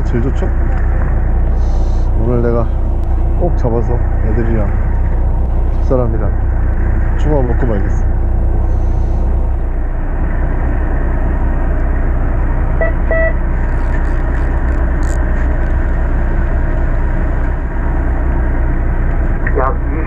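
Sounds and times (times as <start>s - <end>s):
boat engine drone: 0.0s - 20.0s
short beep: 12.8s - 13.4s.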